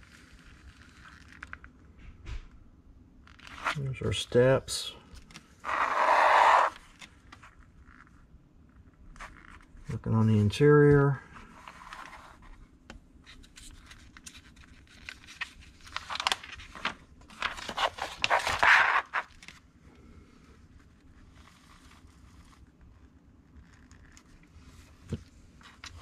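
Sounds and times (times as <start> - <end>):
paper rustling and crackling: 13.3 - 19.6.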